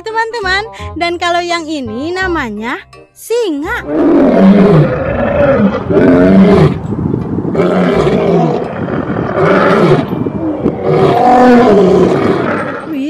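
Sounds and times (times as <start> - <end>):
lions roaring: 3.9 - 6.8, 7.5 - 13.0.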